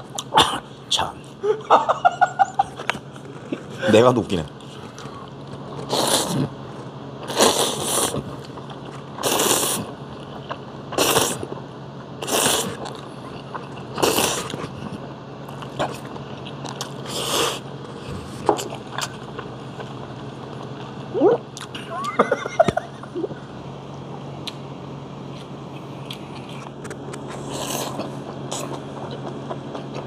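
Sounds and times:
man slurping noodles: 5.8s - 6.6s, 7.3s - 8.3s, 9.2s - 10.0s, 11.0s - 11.5s, 12.2s - 12.9s, 13.9s - 14.8s, 17.0s - 18.6s, 27.4s - 28.7s
chewing with small clicks: 12.8s - 17.0s, 25.3s - 30.0s.

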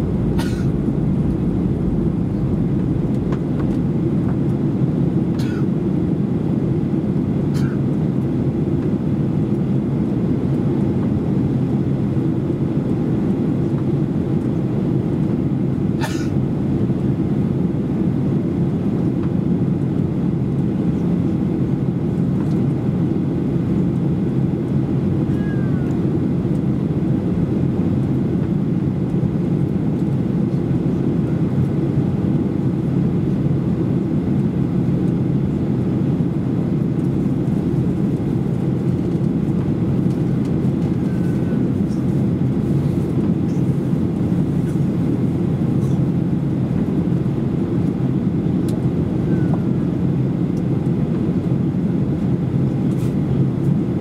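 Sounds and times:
air rushing over fuselage: 0.0s - 5.2s
jet engines droning: 0.0s - 54.0s.

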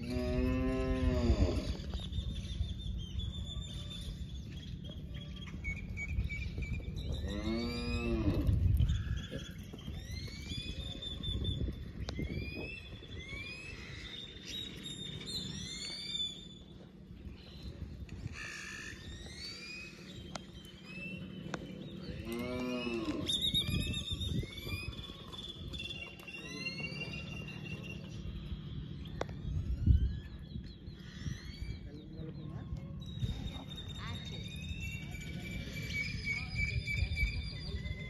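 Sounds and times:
cow mooing: 0.0s - 1.7s, 7.2s - 8.6s, 22.2s - 23.3s
birds chirping: 0.0s - 38.0s
wind rumble on microphone: 0.0s - 38.0s.

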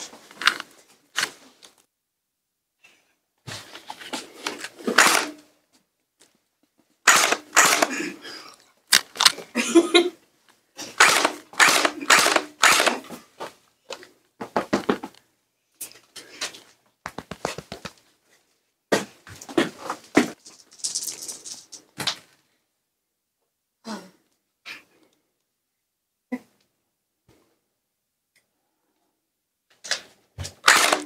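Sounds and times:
gel-ball gun shots snapping: 7.1s - 7.9s, 11.0s - 13.0s, 30.6s - 31.0s.

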